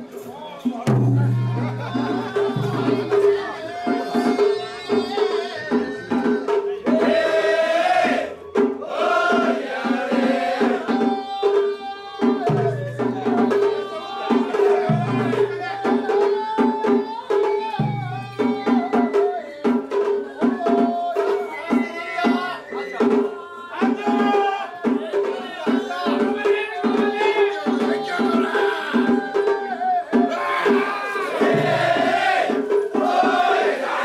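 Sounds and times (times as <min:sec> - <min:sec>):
drums beating quick rhythm: 0:00.0 - 0:34.0
deep drum strokes ringing: 0:00.8 - 0:05.1.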